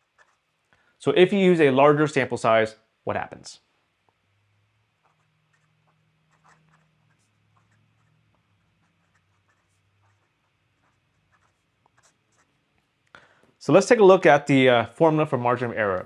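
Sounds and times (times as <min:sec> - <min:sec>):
pen nib scratching on paper: 0:00.0 - 0:00.6, 0:05.0 - 0:12.6
faint low hum: 0:00.0 - 0:16.0.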